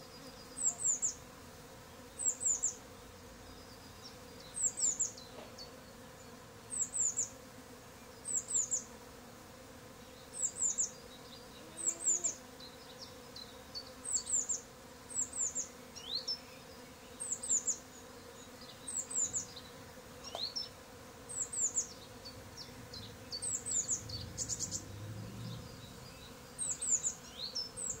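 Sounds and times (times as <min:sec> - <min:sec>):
bees humming: 0:00.0 - 0:28.0
small bird calling: 0:10.4 - 0:13.3, 0:14.0 - 0:28.0.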